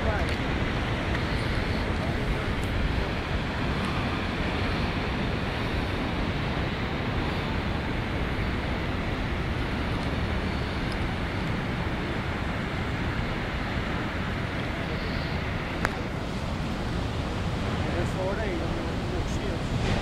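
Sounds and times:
ocean surf breaking on rocks: 0.0 - 20.0
wind buffeting microphone: 0.0 - 20.0.

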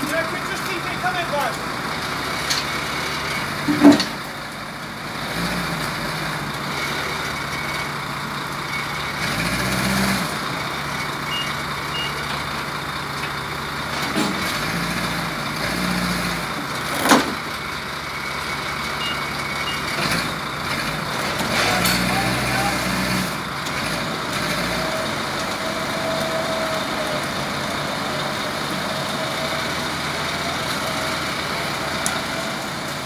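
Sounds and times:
heavy vehicle engine idling: 0.0 - 15.7, 16.4 - 33.0
short high beeps: 11.3 - 12.2.

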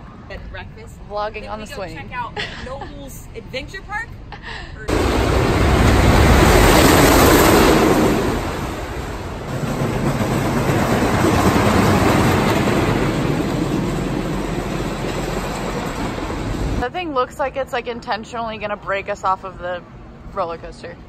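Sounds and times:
roller coaster rumbling and clattering: 4.9 - 16.9.

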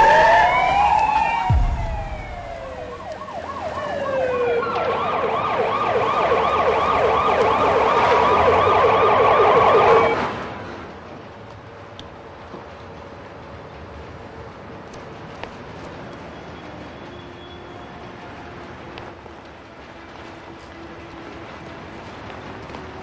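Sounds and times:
yelp siren pulsing: 0.0 - 10.2
police sirens wailing: 0.0 - 10.5
low thud: 1.5 - 3.2.

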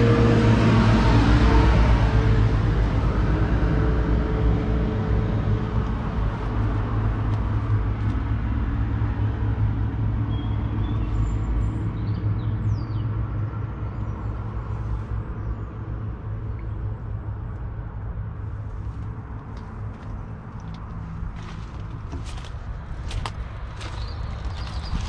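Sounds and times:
diesel engine idling: 0.0 - 11.8.

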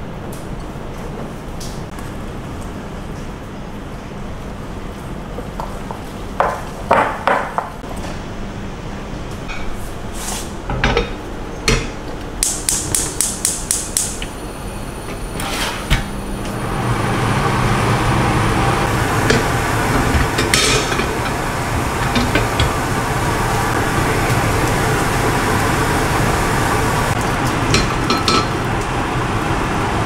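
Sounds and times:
gas burner hissing: 11.7 - 30.0
gas stove igniter clicks: 12.4 - 14.3.

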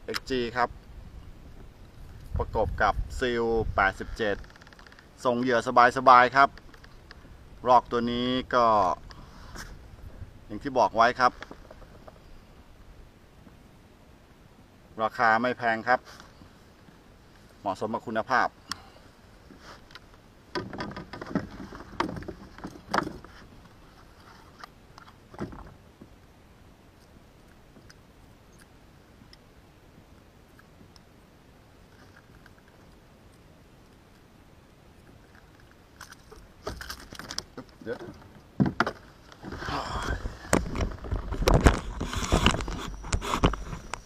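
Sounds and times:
knocks and clatter in plastic kayak: 20.5 - 26.2, 36.0 - 44.0.

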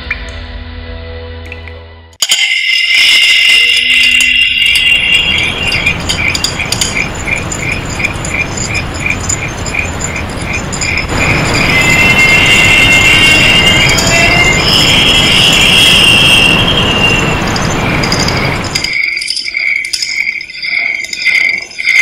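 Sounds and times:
regular ticking: 2.2 - 14.8, 17.3 - 22.0
high-pitched squeal: 2.3 - 22.0
scattered clicks: 4.1 - 11.2.

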